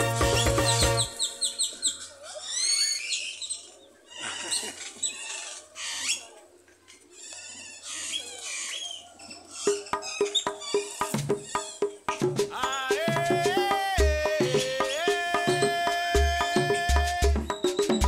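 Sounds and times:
music with sharp even beat: 0:00.0 - 0:01.6, 0:11.0 - 0:18.0
birds chirping: 0:00.0 - 0:18.0.

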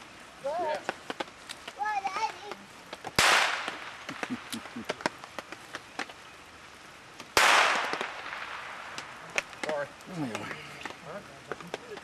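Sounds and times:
blank pistol shot with echo: 0:07.4 - 0:09.1.

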